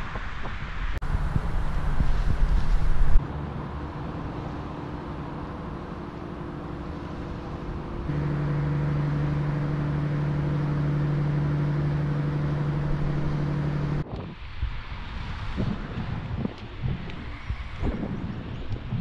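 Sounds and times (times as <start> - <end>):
waterfront background noise: 0.0 - 19.0
low mechanical hum: 1.0 - 14.1.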